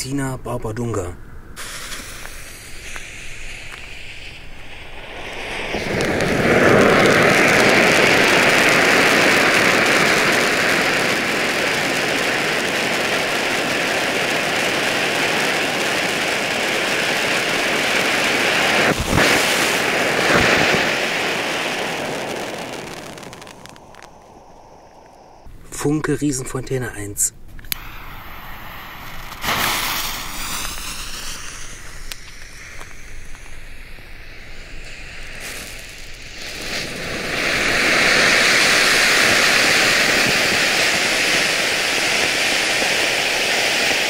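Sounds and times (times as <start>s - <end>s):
sharp cracks: 1.0s - 25.5s, 27.5s - 44.0s
firework fuse fizzing: 1.5s - 25.9s, 27.6s - 44.0s
hiss of spraying sparks: 1.6s - 25.5s, 27.7s - 44.0s.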